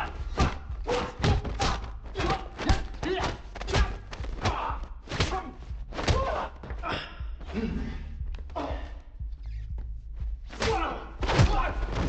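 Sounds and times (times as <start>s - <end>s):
punches landing: 0.0s - 7.0s, 10.5s - 12.0s
men grunting: 0.0s - 9.1s.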